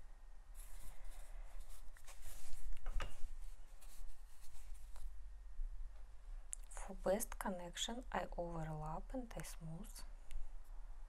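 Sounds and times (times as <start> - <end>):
hands rubbing clay on paper: 0.6 - 5.1.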